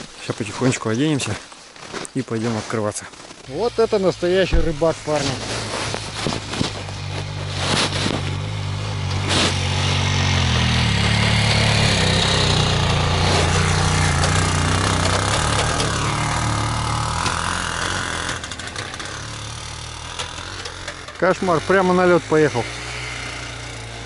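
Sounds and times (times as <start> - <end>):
motor scooter engine driving past: 8.1 - 21.7, 22.5 - 24.0.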